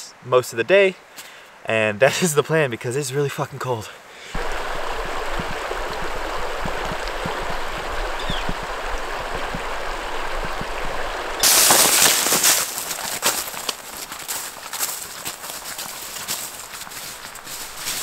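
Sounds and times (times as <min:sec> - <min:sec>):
stream rushing over rocks: 0:04.3 - 0:18.0.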